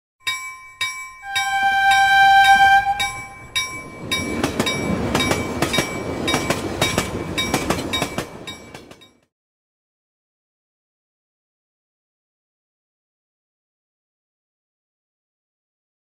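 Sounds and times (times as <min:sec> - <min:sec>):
train horn: 0:01.2 - 0:03.5
train wheels clacking: 0:01.3 - 0:09.3.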